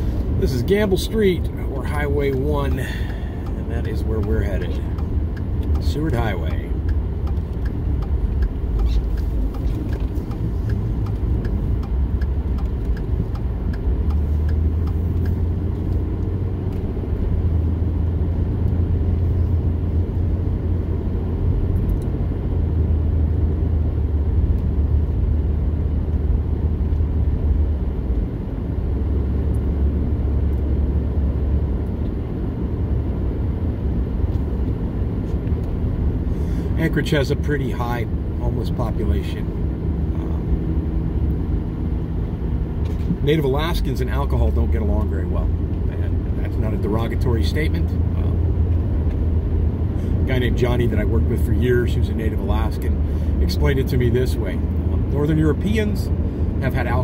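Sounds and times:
truck engine and tyre rumble: 0.0 - 57.0.

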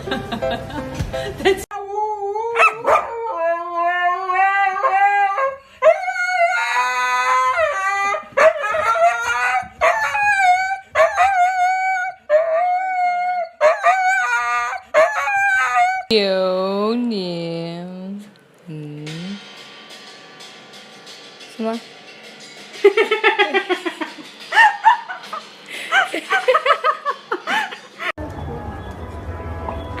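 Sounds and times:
husky howling: 1.9 - 16.1.

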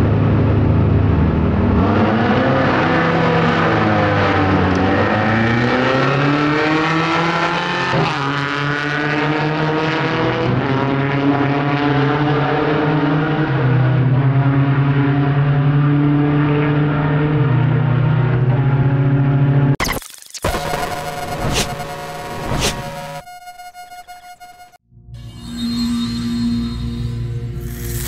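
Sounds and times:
steady engine drone: 0.0 - 5.4, 20.4 - 28.0
motorcycles accelerating hard: 1.7 - 14.2.

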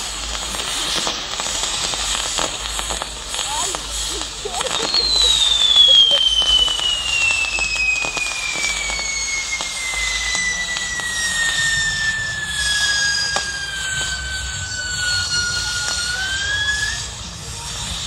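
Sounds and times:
firework wheel hissing: 0.0 - 18.0
whistle gliding down in pitch: 4.5 - 18.0.

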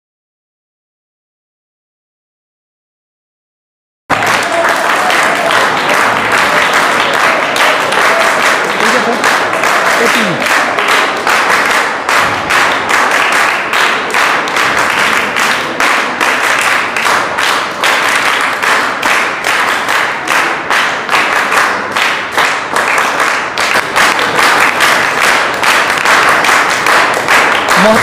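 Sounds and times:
audience applause: 4.1 - 28.0.

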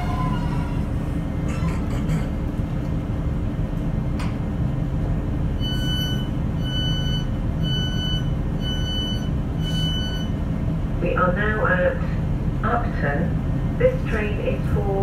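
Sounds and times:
diesel engine idling: 0.0 - 15.0
door warning beeps: 5.6 - 10.4.

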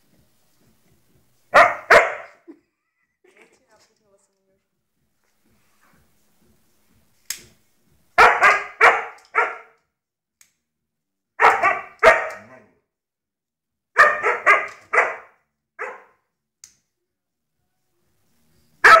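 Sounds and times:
dog barking: 1.5 - 2.4, 8.2 - 9.8, 11.4 - 12.8, 14.0 - 16.2
click: 10.4 - 10.6, 16.6 - 16.9.

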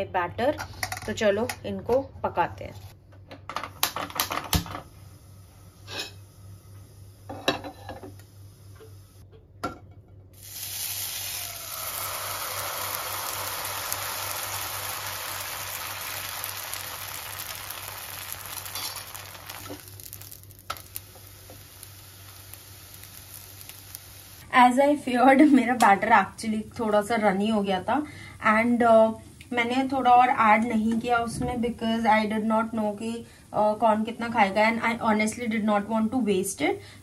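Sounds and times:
batter sizzling in a pan: 10.4 - 24.4.

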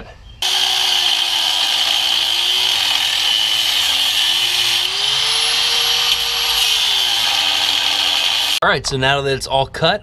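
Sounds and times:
cut-off wheel grinding steel: 0.4 - 8.6.

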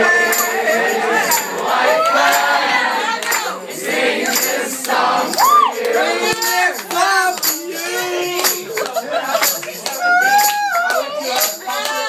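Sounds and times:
crowd singing and yelling: 0.0 - 12.0
loud whoop: 5.4 - 5.8, 10.0 - 11.0
sharp claps: 8.4 - 12.0.

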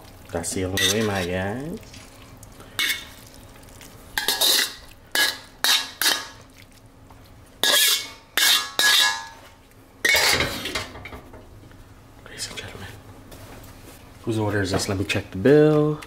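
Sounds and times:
metal spatula scraping wok: 0.7 - 1.3, 4.2 - 6.2, 7.6 - 9.4, 10.0 - 10.8.

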